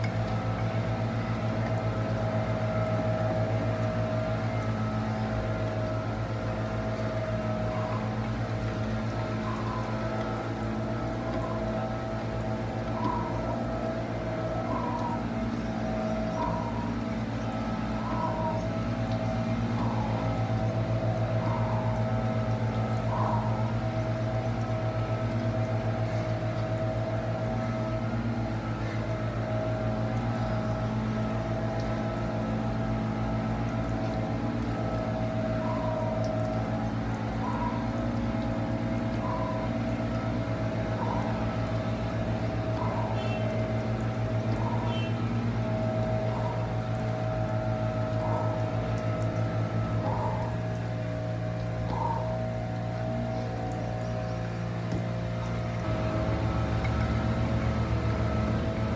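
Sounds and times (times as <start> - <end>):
small motor humming: 0.0 - 58.9.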